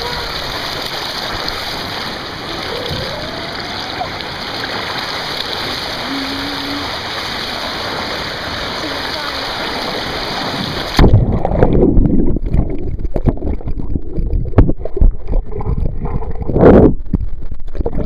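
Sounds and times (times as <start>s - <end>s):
rush of water: 0.0s - 18.0s
water splashing: 0.0s - 18.0s
muffled underwater knocks and bubbles: 10.9s - 18.0s.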